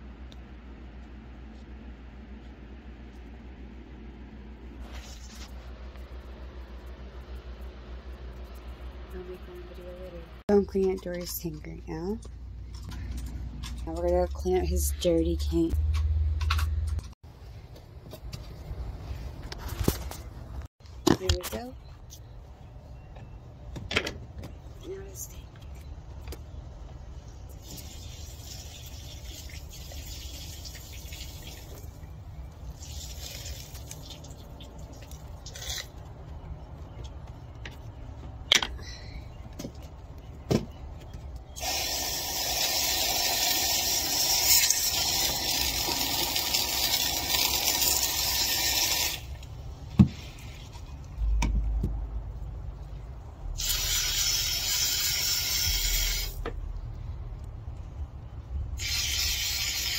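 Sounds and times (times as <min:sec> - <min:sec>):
hose spray hissing and splashing: 0:41.6 - 0:49.2, 0:53.6 - 0:56.4, 0:58.8 - 0:59.9.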